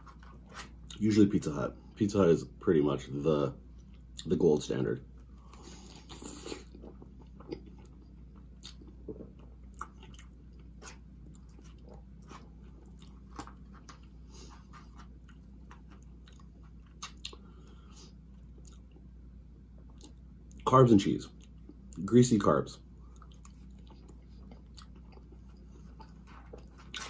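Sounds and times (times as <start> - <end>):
person chewing: 0.0 - 1.0, 5.2 - 20.7, 23.0 - 27.0
low steady hum: 0.0 - 27.0.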